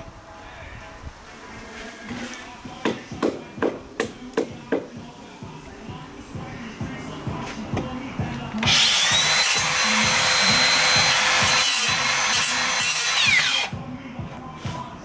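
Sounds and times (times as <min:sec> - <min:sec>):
circular saw cutting wood: 0:08.6 - 0:13.7
saw winding down whine: 0:08.6 - 0:13.7.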